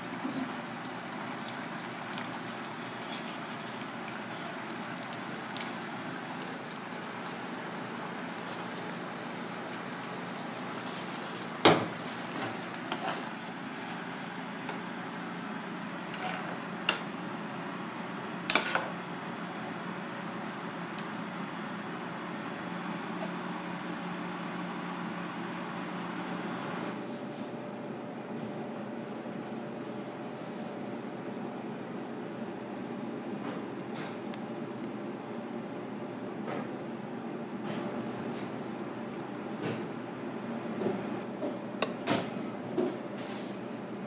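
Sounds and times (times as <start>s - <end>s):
sauce simmering and bubbling: 0.0s - 16.2s.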